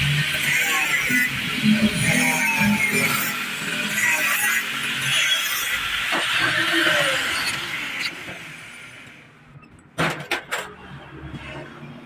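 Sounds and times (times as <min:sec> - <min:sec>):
angle grinder grinding metal: 0:00.0 - 0:09.0.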